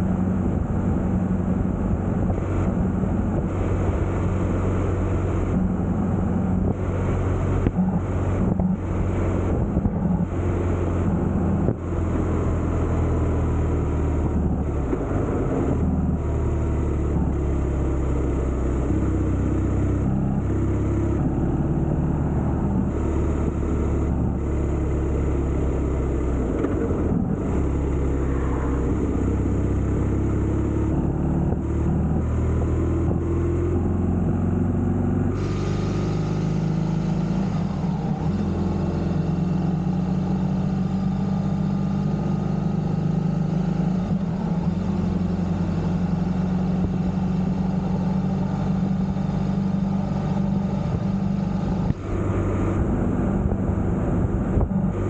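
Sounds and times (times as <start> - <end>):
wind noise: 0.0 - 16.3, 50.2 - 55.0
motorcycle engine running: 43.6 - 55.0.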